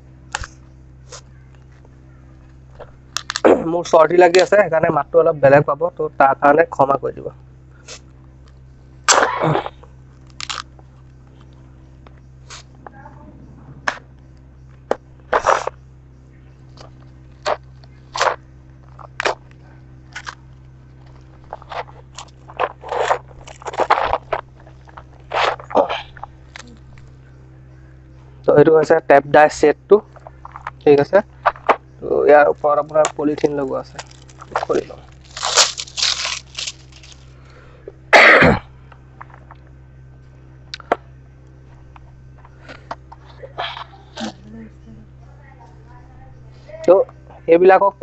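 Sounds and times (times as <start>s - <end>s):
man coughing: 9.1s - 9.8s, 38.1s - 38.7s
packaging torn and crumpled: 10.2s - 10.7s, 21.0s - 26.8s, 32.8s - 37.3s
plastic film rustling: 21.0s - 25.8s, 32.4s - 37.4s.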